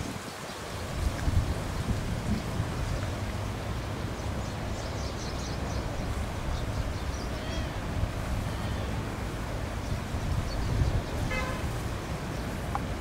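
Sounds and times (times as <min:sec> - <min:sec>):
wind rumble: 0:00.0 - 0:13.0
distant traffic: 0:02.7 - 0:13.0
small birds chirping: 0:04.0 - 0:09.0, 0:09.7 - 0:11.4.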